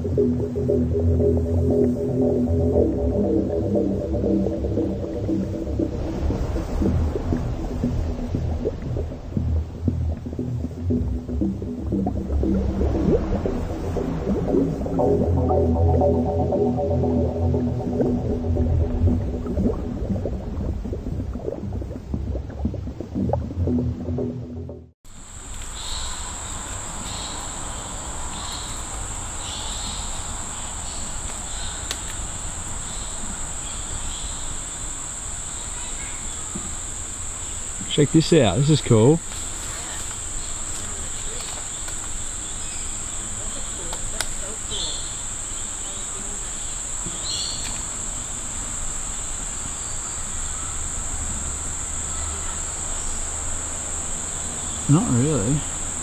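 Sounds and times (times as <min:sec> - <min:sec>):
soft low repeating call: 0:00.0 - 0:24.9
low rumble: 0:00.0 - 0:25.0.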